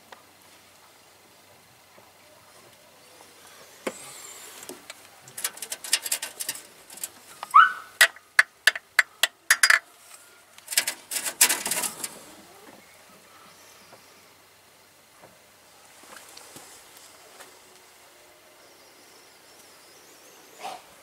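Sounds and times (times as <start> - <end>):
metallic clicks and rattles: 4.8 - 9.8, 10.6 - 12.2.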